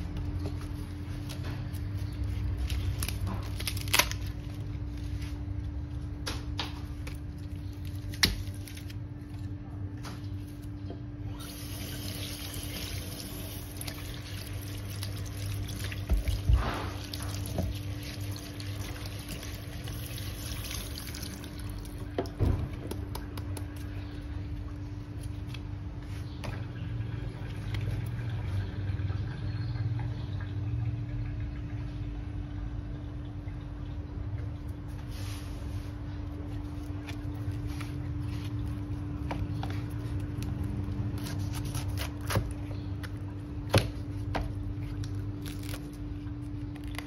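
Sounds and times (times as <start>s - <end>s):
water splashing in a steel sink: 11.5s - 22.0s.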